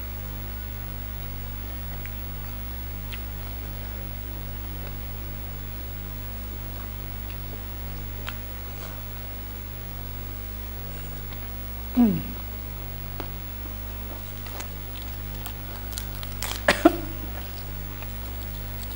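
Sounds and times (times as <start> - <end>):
low electrical hum with hiss: 0.0 - 18.9
faint eating clicks: 1.9 - 3.6, 14.0 - 18.9.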